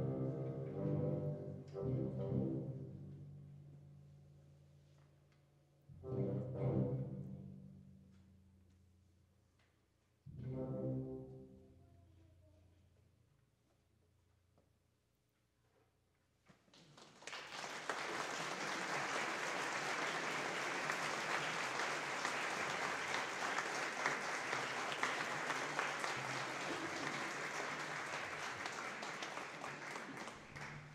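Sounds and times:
audience applauding: 16.7 - 30.9.

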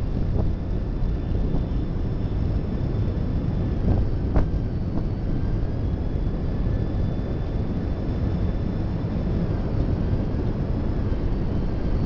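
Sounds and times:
train wheels rumbling on rail: 0.0 - 6.4.

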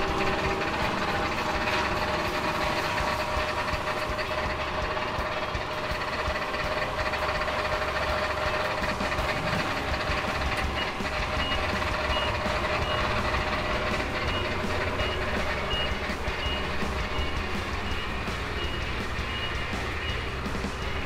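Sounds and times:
forklift machine hum: 0.0 - 21.0
reversing alarm beeps: 10.0 - 21.0.

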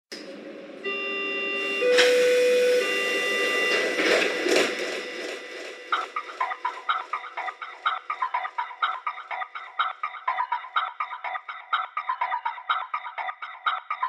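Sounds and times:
sustained synthesizer tones: 0.4 - 10.7
low synth note: 0.8 - 6.7.

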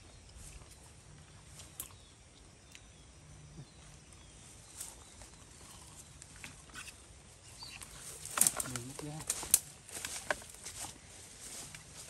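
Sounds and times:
rustling in undergrowth: 3.8 - 12.0.

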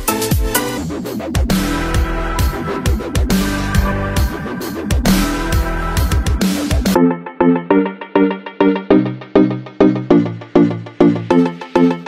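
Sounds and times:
electronic dance music: 0.0 - 12.0
heavy kick drums: 1.4 - 7.0.

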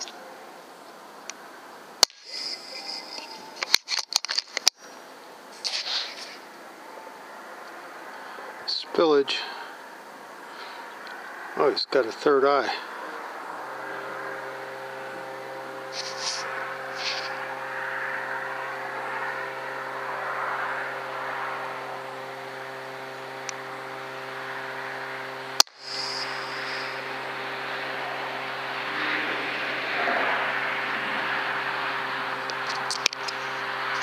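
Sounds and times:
mechanical hum: 0.0 - 34.0
hiss: 5.5 - 6.4, 15.9 - 17.4, 25.6 - 27.0.

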